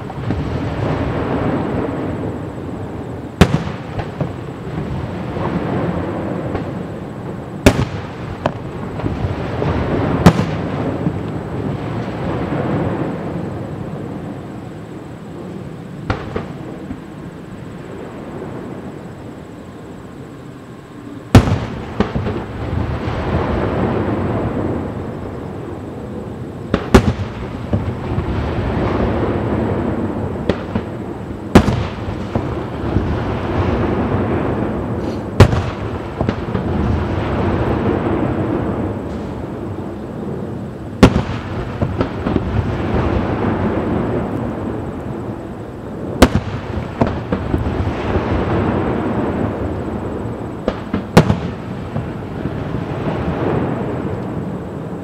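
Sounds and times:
firework shells booming: 0:00.0 - 0:14.3, 0:16.0 - 0:17.1, 0:21.3 - 0:25.1, 0:26.6 - 0:45.2, 0:46.0 - 0:54.7
smaller firework bangs: 0:00.0 - 0:19.7, 0:21.3 - 0:55.0
continuous low rumble: 0:00.0 - 0:55.0
steady background noise: 0:00.0 - 0:55.0
small firework pops: 0:03.4 - 0:04.4, 0:06.4 - 0:06.8, 0:07.6 - 0:09.2, 0:10.2 - 0:11.4, 0:16.1 - 0:17.0, 0:26.7 - 0:27.9, 0:46.2 - 0:47.7, 0:50.6 - 0:51.6.

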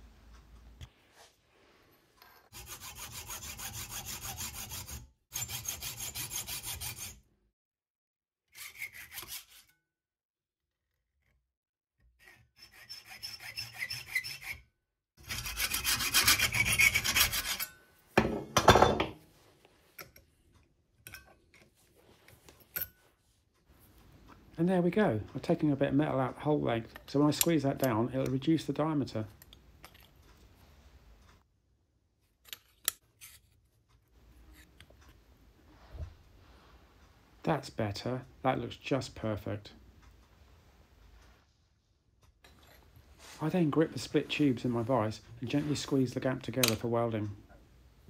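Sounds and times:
hacksaw cutting metal tube: 0:02.5 - 0:07.2, 0:08.5 - 0:09.8, 0:12.2 - 0:14.6, 0:15.2 - 0:17.8.

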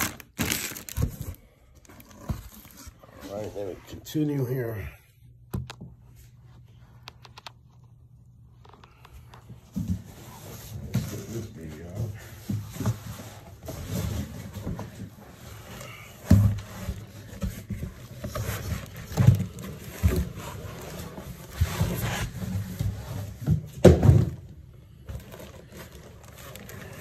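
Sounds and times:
cardboard and foam scraping: 0:12.7 - 0:23.4.

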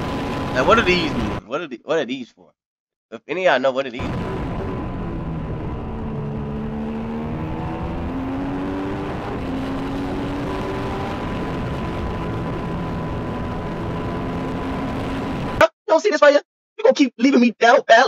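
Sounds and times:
racing car engine at speed: 0:00.0 - 0:01.4, 0:04.0 - 0:15.6.

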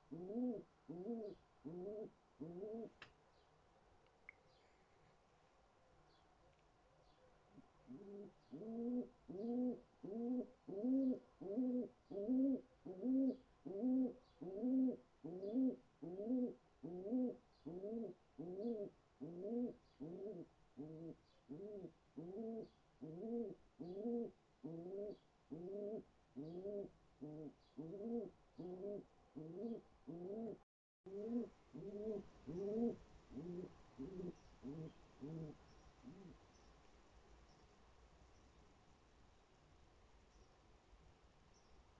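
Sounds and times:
pigeon cooing: 0:00.0 - 0:03.0, 0:07.9 - 0:36.4.

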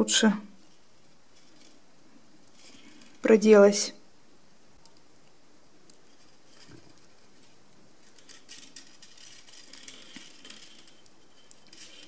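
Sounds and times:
wire clicking and scratching: 0:00.6 - 0:03.3, 0:04.8 - 0:12.0.

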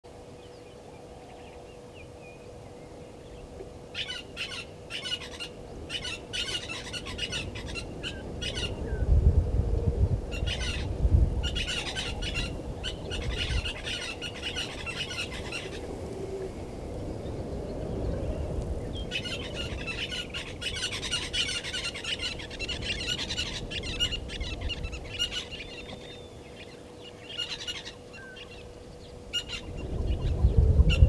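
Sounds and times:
low rumble: 0:29.5 - 0:31.0.

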